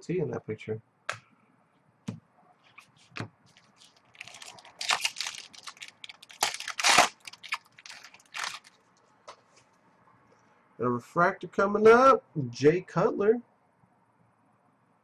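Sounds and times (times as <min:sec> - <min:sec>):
wrapper crinkling: 0:02.7 - 0:08.8.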